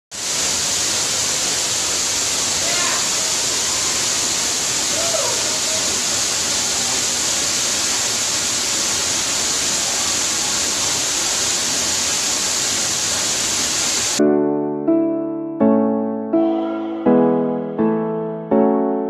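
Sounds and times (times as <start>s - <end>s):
waterfall splashing on rock: 0.1s - 14.2s.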